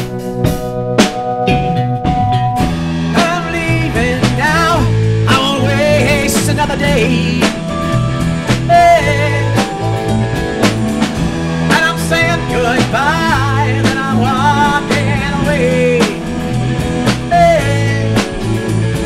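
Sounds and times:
rock band playing live: 0:00.0 - 0:19.0
man singing lead vocal: 0:03.1 - 0:10.2, 0:11.7 - 0:19.0.

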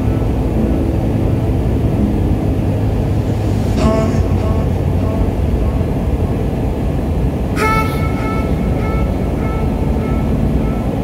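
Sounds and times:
jet engine rumble in cabin: 0:00.0 - 0:11.0
brief high tone: 0:07.5 - 0:11.0.

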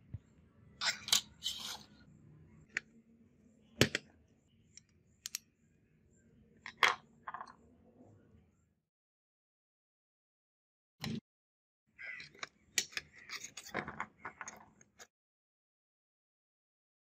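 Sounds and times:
model car parts clicking and knocking: 0:12.1 - 0:15.1.

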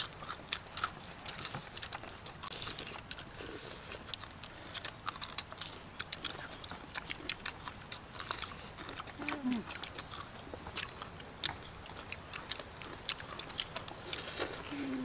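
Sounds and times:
people chewing and biting: 0:00.0 - 0:15.0.

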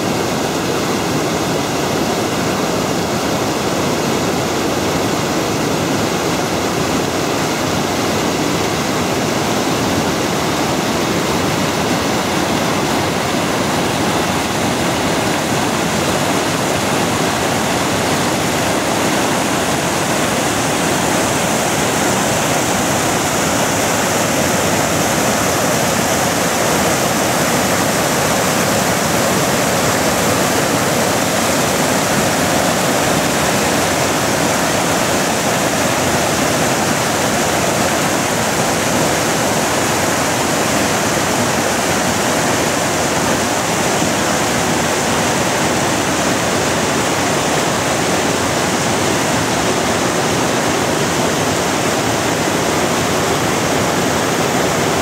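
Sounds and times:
river water rushing over rocks: 0:00.0 - 0:55.0.

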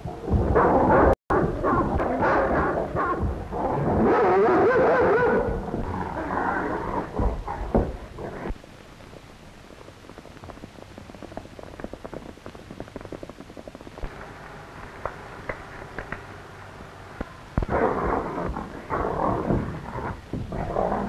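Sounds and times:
steady soundtrack hiss: 0:00.0 - 0:21.0
dog snarling: 0:00.5 - 0:08.5
horses' hoofbeats: 0:10.1 - 0:16.4.

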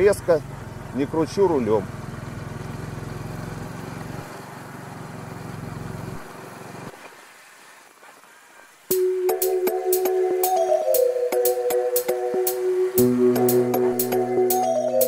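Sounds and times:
motorcycle engine running: 0:00.0 - 0:06.8, 0:12.9 - 0:14.6
music: 0:08.9 - 0:15.0.

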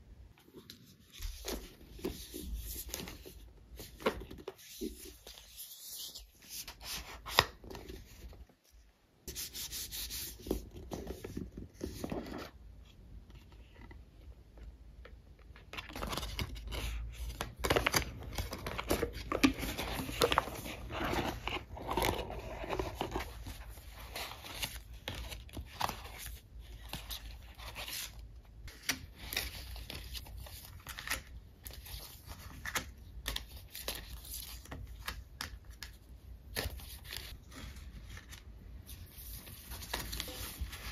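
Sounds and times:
paper and cardboard rustling: 0:15.6 - 0:40.9.

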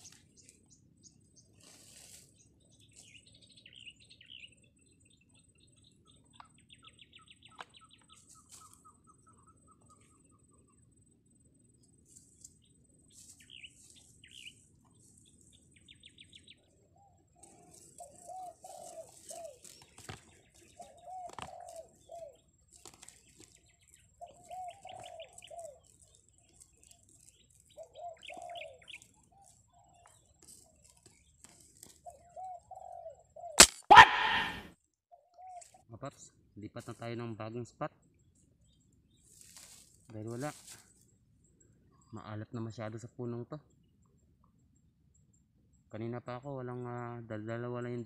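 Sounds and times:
small birds chirping: 0:00.0 - 0:11.1, 0:11.7 - 0:47.1
doves cooing: 0:17.0 - 0:26.0, 0:27.7 - 0:30.8, 0:31.5 - 0:34.7
sharp sound: 0:33.6 - 0:34.7.

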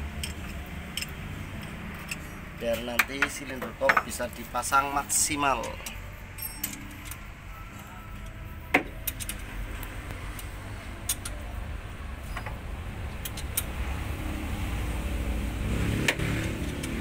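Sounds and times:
ratchet clicking: 0:00.1 - 0:03.4.

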